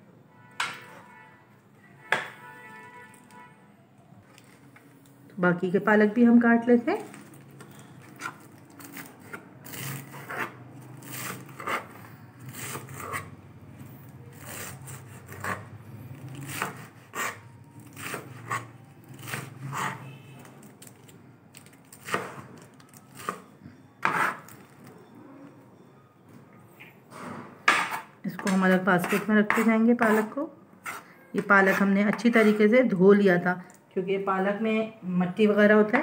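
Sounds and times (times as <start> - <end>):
knife chopping on plastic board: 16.4 - 17.4.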